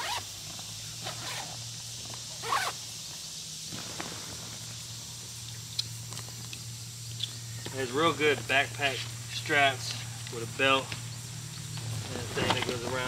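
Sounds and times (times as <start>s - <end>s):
zipper and nylon rasping: 0.0s - 0.3s, 1.0s - 1.6s, 2.4s - 2.8s.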